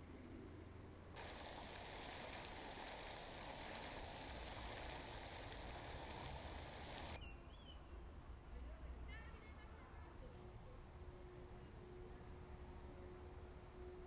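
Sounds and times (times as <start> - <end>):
fountain water splashing: 1.2 - 7.2.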